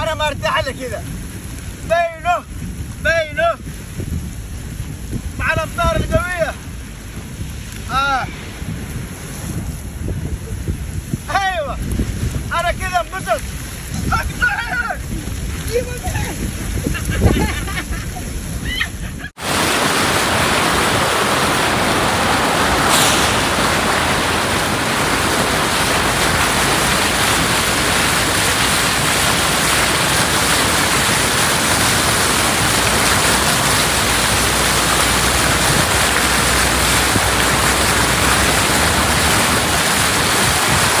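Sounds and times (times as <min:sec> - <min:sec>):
sharp hiss: 0:07.8 - 0:10.3, 0:22.1 - 0:27.7
tyres rushing through water: 0:19.3 - 0:41.0.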